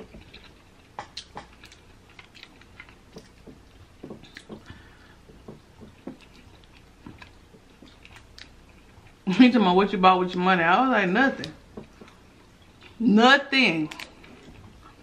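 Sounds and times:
chewing: 0.0s - 9.2s.

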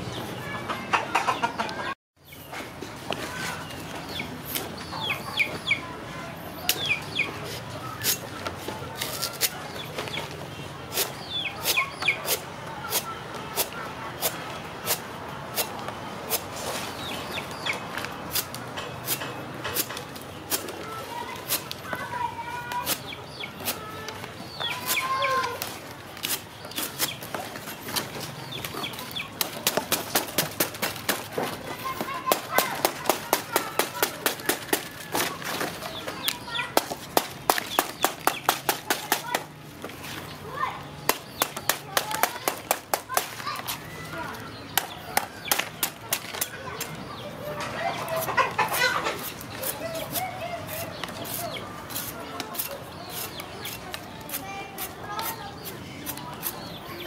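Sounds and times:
bird chirping: 3.3s - 5.9s, 6.5s - 8.4s, 9.0s - 12.4s, 22.0s - 30.4s
knife chopping plant stalk: 51.2s - 55.3s.

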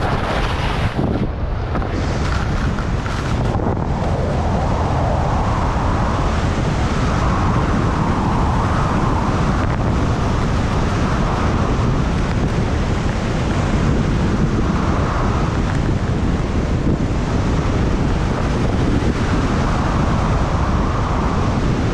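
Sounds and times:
skis scraping over snow: 0.0s - 4.9s
wind buffeting microphone: 0.0s - 21.9s.

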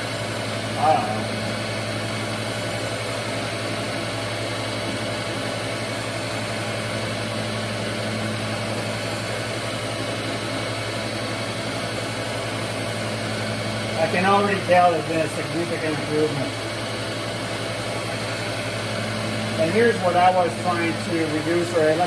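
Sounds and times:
surface grinder motor hum: 0.0s - 22.0s
grinding wheel hiss on metal: 12.1s - 22.0s.

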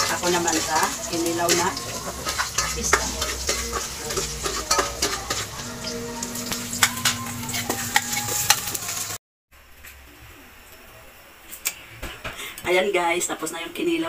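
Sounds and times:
metal ladle clinking against pot: 0.0s - 8.6s
cooking pot sizzling: 0.0s - 14.0s.

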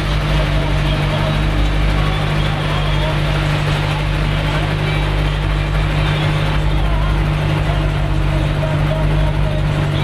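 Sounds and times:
boat engine drone: 0.0s - 10.0s
passenger chatter: 0.0s - 10.0s.

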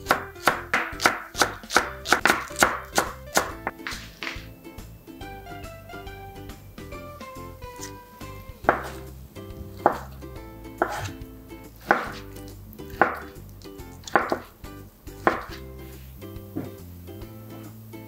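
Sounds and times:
light background music: 0.0s - 18.0s
knife knocking on cutting board: 8.6s - 9.0s, 9.8s - 10.1s, 13.0s - 13.3s, 14.1s - 14.5s, 15.3s - 15.6s.

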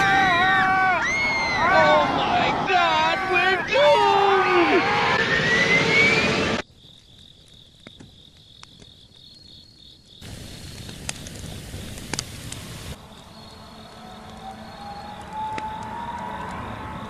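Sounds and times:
airliner diving with rising whistle: 4.6s - 6.6s, 13.1s - 17.0s
campfire crackling and popping: 6.6s - 17.0s
crickets chirping: 6.6s - 17.0s.

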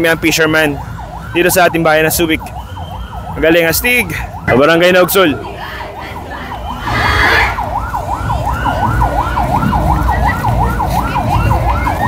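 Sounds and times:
electronic yelp siren: 0.0s - 12.0s.

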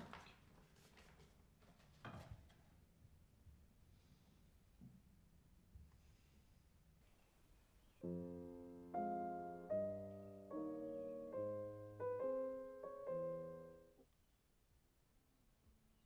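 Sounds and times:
piano chords ringing: 8.0s - 14.0s.

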